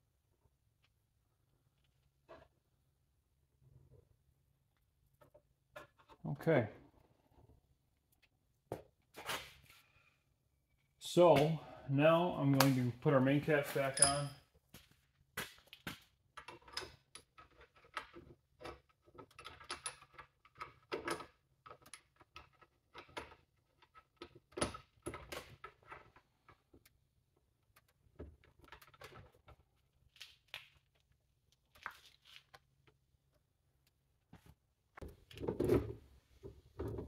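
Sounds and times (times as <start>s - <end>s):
metal parts clinking: 13.9s - 14.4s.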